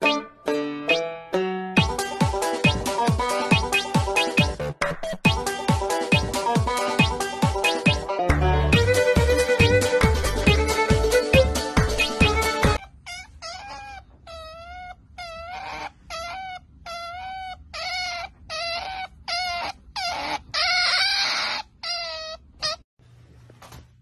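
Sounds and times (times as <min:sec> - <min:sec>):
background music: 0:00.0 - 0:12.8
otter squeaking calls: 0:06.7 - 0:08.0.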